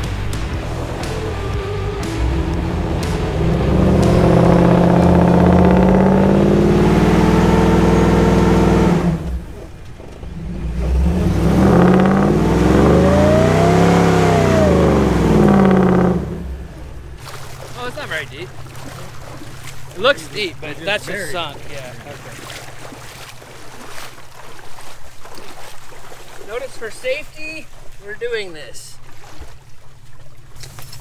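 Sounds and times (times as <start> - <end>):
engine revving hard: 0.0 - 18.5.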